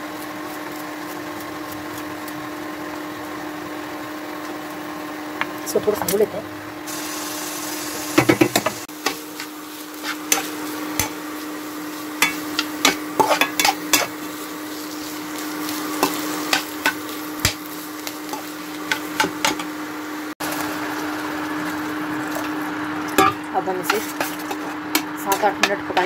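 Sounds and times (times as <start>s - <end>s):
potatoes sizzling: 0.0s - 26.0s
metal spatula scraping pan: 9.0s - 11.1s, 12.2s - 14.1s.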